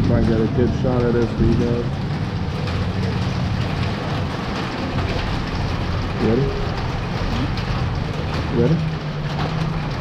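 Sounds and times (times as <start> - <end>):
low even rumble: 0.0 - 10.0
steady rain falling: 0.0 - 10.0.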